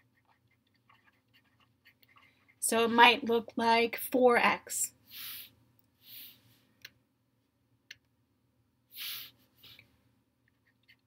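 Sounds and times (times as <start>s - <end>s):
soft puffs of hiss: 5.0s - 6.8s, 8.9s - 10.1s.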